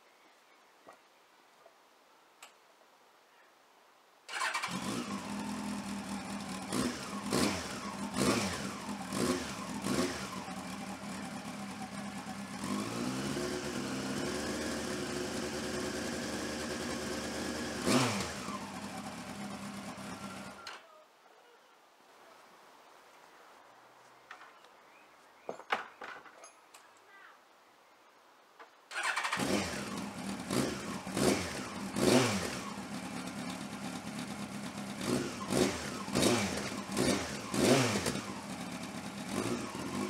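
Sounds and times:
motorcycle engine revving and idling: 4.3 - 20.7, 28.9 - 40.0.

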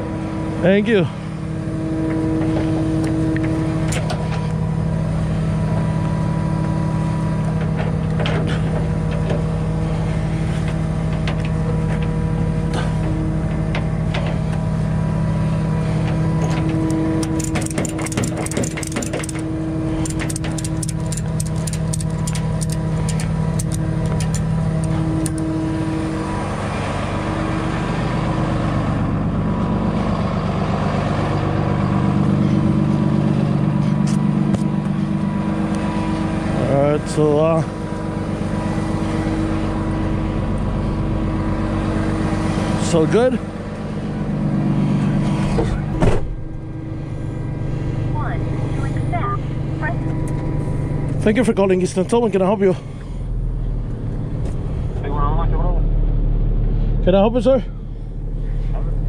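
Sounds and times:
truck engine running: 0.0 - 59.0
rapid clicking: 17.2 - 19.4, 20.0 - 25.4.

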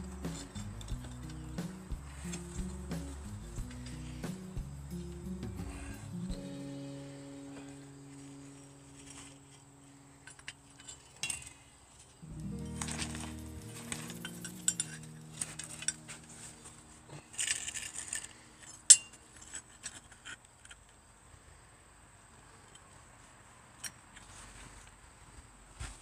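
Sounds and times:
metal parts clinking on concrete: 0.0 - 6.2, 10.2 - 21.0, 23.8 - 24.3
metal scraping: 0.0 - 6.9, 7.5 - 20.3.

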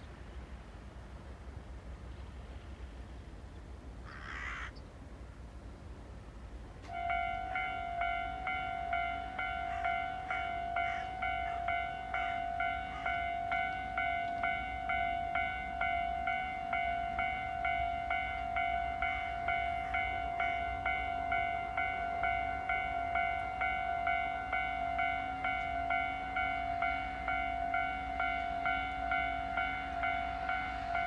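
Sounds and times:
level crossing alarm ringing: 6.9 - 31.0.

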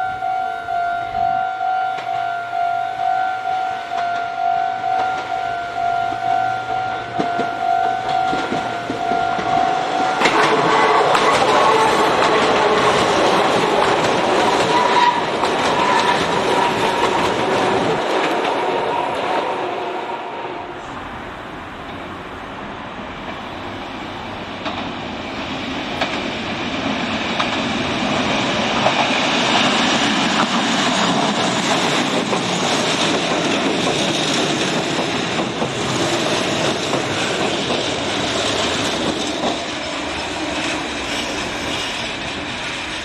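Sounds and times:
electric train passing: 0.0 - 43.0
wheels clattering over rail joints: 7.0 - 19.5, 24.6 - 43.0.

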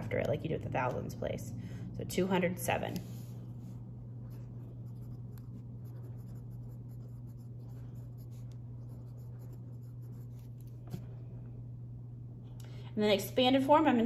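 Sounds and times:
steady low hum: 0.0 - 14.0
pen scratching on paper: 4.3 - 10.7.

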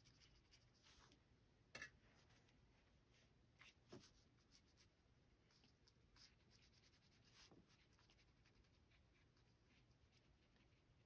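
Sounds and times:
paintbrush scratching on paper: 0.0 - 1.2, 3.6 - 11.0.

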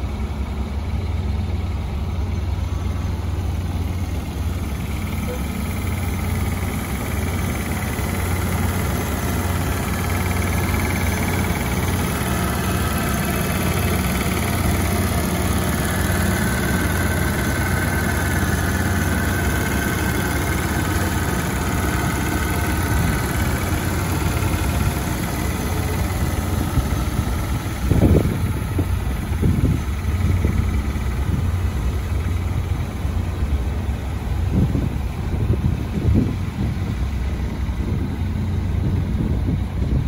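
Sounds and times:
car engine idling: 0.0 - 40.0.

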